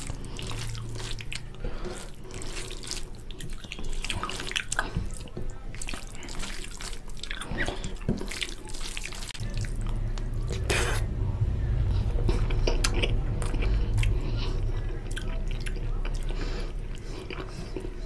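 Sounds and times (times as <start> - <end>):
fingers squishing wet food: 0.0 - 11.0.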